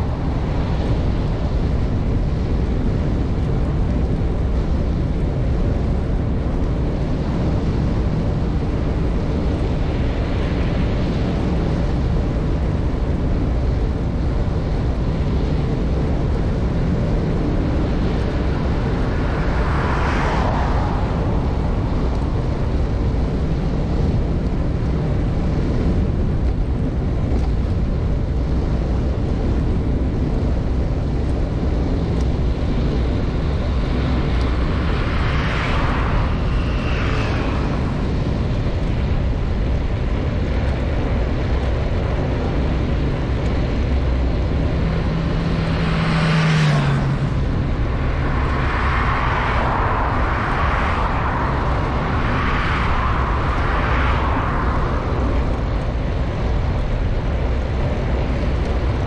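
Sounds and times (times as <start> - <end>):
wind and road noise from bicycle: 0.0 - 59.0
motor traffic passing: 42.9 - 52.2.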